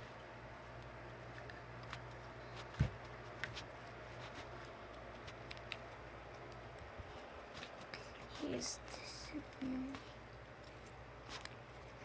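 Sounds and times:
steady low hum: 0:00.0 - 0:12.0
sticky clicks: 0:04.7 - 0:06.9.

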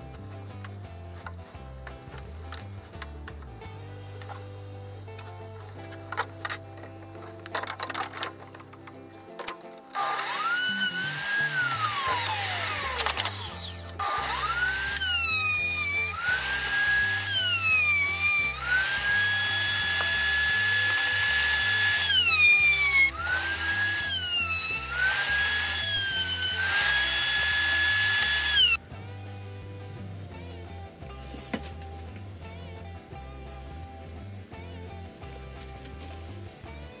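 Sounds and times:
electric router whining: 0:10.0 - 0:28.8.

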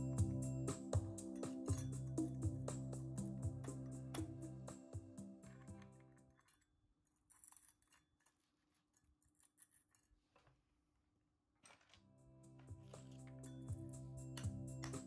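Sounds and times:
background music: 0:00.0 - 0:06.2, 0:12.1 - 0:15.0.

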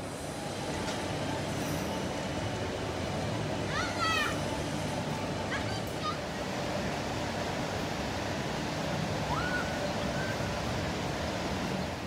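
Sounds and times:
rushing outdoor noise: 0:00.0 - 0:12.0.

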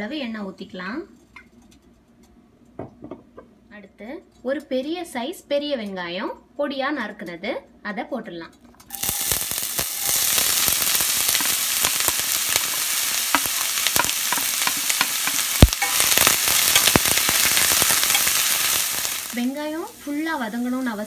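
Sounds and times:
onions sizzling in hot oil: 0:08.9 - 0:21.0
wooden spatula stirring: 0:13.2 - 0:18.7.

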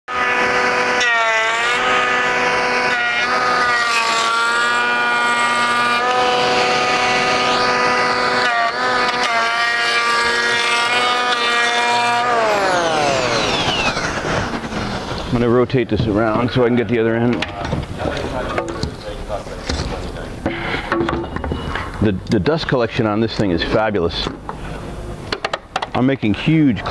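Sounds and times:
electric planer whine: 0:00.1 - 0:15.5.

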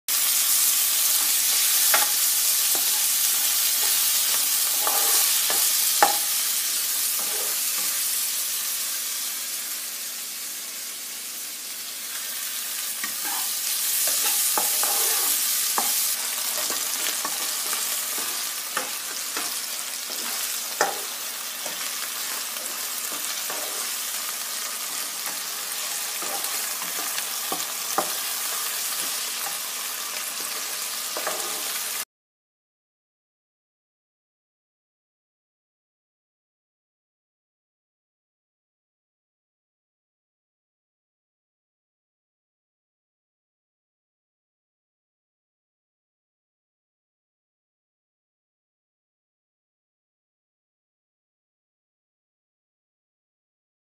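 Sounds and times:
vegetables sizzling in oil: 0:00.1 - 0:32.0
spatula scraping and tapping pan: 0:01.0 - 0:06.4, 0:07.0 - 0:08.0, 0:13.0 - 0:24.0, 0:24.6 - 0:31.8.

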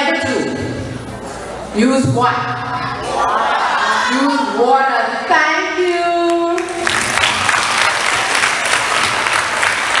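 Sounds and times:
audience applause: 0:06.6 - 0:10.0.

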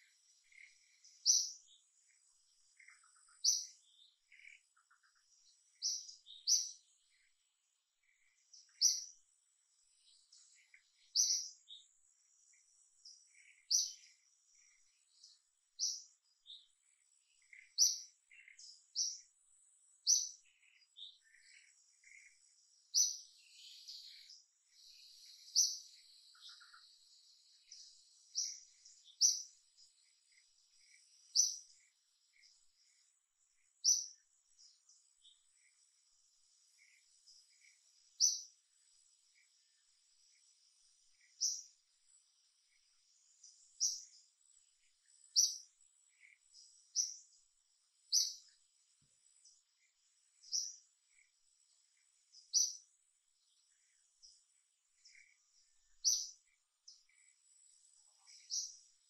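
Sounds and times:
birds chirping: 0:00.0 - 0:59.0
thin insect buzz: 0:34.6 - 0:41.7, 0:58.2 - 0:58.8.

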